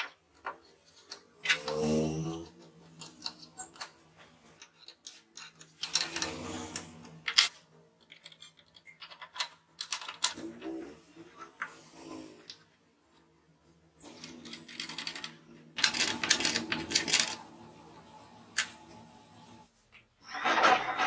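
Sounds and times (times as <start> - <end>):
small metal parts clicking: 2.3 - 4.0, 4.6 - 10.4, 14.0 - 17.4
metal scraping on metal: 20.2 - 21.0.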